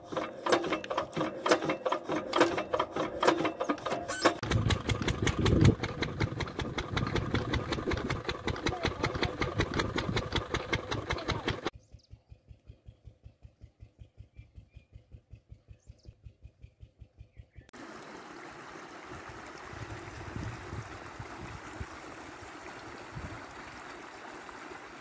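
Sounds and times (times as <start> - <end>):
diesel engine thudding: 0.3 - 11.7.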